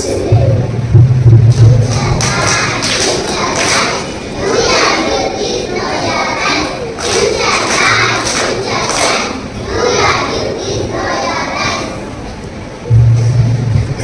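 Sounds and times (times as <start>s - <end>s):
thudding beat: 0.4s - 4.0s
children singing: 1.7s - 12.4s.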